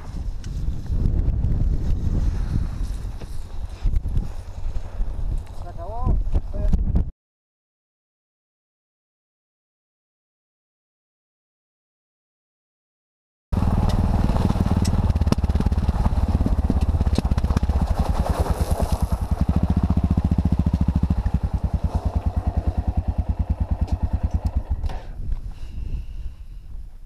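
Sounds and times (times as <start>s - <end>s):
motorcycle engine running: 13.6s - 25.2s
gravel clicks: 13.6s - 25.5s.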